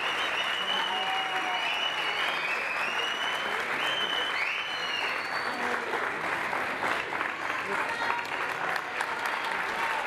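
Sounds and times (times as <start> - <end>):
shrill cheers: 0.0 - 5.6
audience applauding: 0.0 - 10.0.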